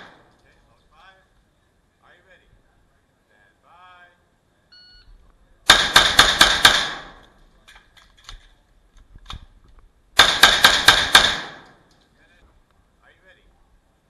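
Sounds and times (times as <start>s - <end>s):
rapid gunshots: 5.7s - 7.2s, 10.2s - 11.7s.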